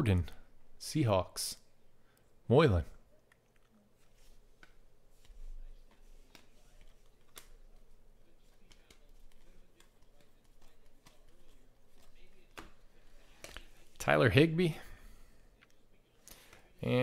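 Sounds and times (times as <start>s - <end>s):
cards clicking and sliding: 3.3s - 13.7s.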